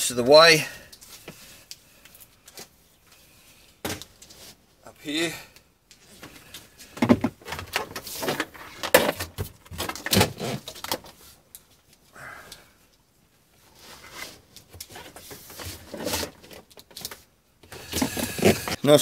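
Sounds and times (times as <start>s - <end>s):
plastic tubing rustling and scraping: 0.9s - 4.8s, 6.0s - 12.0s, 12.9s - 19.0s.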